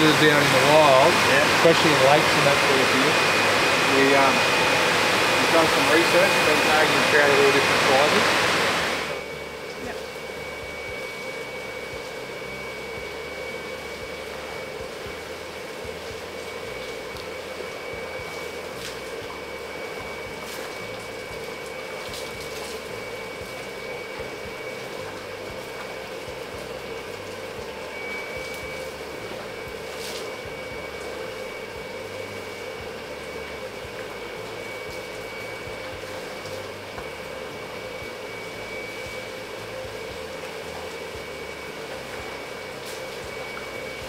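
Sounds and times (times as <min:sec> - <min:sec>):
machinery hum and hiss: 0:00.0 - 0:44.0
thin high whine: 0:00.0 - 0:44.0.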